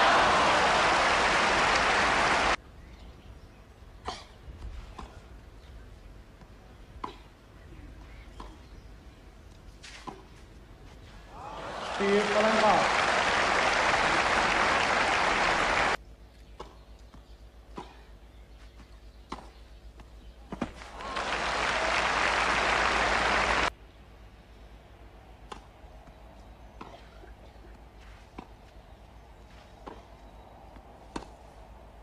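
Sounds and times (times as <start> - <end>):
crowd applauding: 0.0 - 2.6, 11.4 - 16.0, 20.8 - 23.7
tennis ball hits: 30.8 - 31.4.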